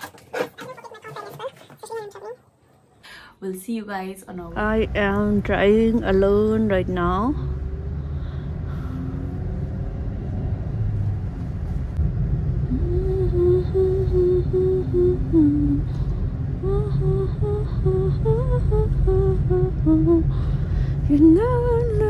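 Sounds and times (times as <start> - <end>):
car road and engine rumble: 4.3 - 22.0
person humming: 12.7 - 16.0, 16.6 - 20.3.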